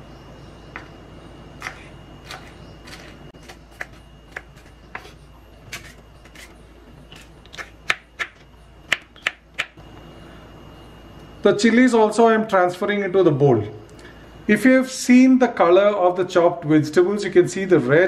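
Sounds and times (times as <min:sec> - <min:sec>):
knife chopping on wooden board: 0:01.6 - 0:06.5, 0:07.1 - 0:09.8.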